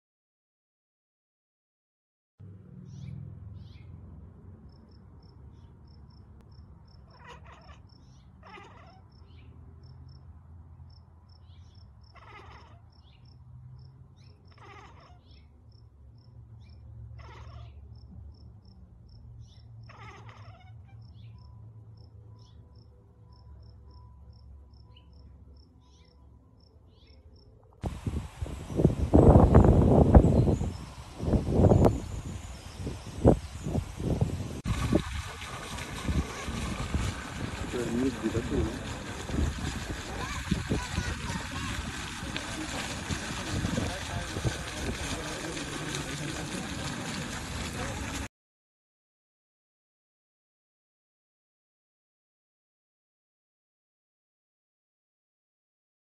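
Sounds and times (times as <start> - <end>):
cat meowing: 7.1 - 9.1, 12.2 - 12.8, 14.5 - 15.3, 17.2 - 17.8, 19.9 - 20.8.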